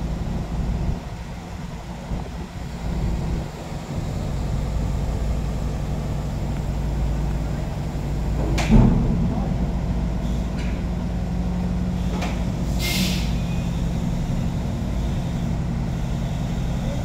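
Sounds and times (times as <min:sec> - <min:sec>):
diesel engines idling: 0:00.0 - 0:17.0
short air hiss: 0:12.7 - 0:13.8.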